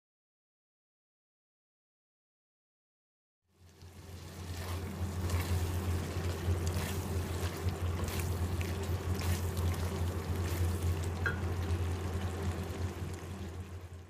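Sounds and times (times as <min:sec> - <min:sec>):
gravy sizzling: 0:03.5 - 0:14.0
steady low hum: 0:03.6 - 0:14.0
spatula scraping a steel wok: 0:04.4 - 0:08.4.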